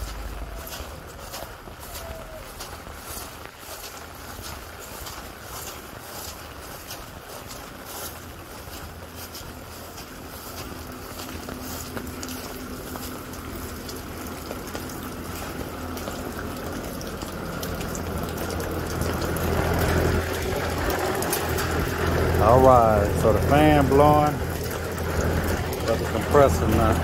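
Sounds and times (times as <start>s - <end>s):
air conditioner fan motor humming: 0.0s - 27.0s
footsteps on wet ground: 0.0s - 27.0s.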